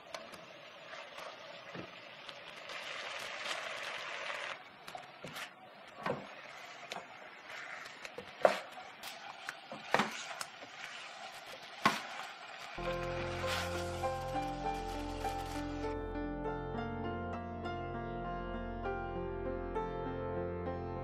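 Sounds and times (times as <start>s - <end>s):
food sizzling in a wok: 0.4s - 4.6s, 6.3s - 15.9s
spatula scraping and knocking pan: 5.2s - 12.3s.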